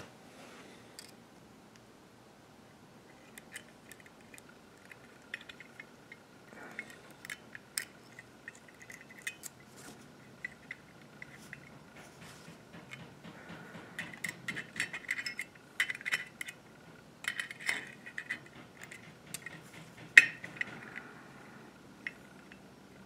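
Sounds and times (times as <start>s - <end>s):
small metallic clicks and taps: 10.3s - 16.6s, 17.2s - 21.1s.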